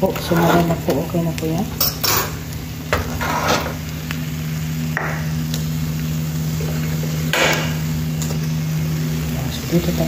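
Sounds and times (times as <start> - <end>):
steady low hum: 0.0 - 10.0
metal utensil scraping frying pan: 0.1 - 0.9, 3.0 - 3.8.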